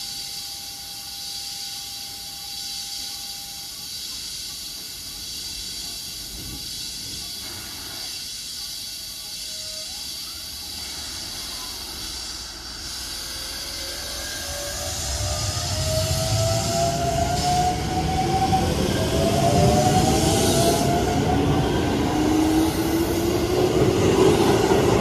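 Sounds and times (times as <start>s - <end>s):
electric train hissing: 0.0s - 25.0s
rising electric whine: 11.3s - 25.0s.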